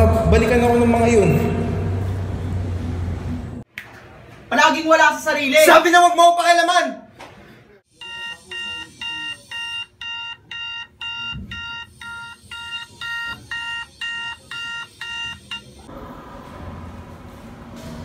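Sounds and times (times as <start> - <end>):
alarm clock beeping: 8.0 - 15.9.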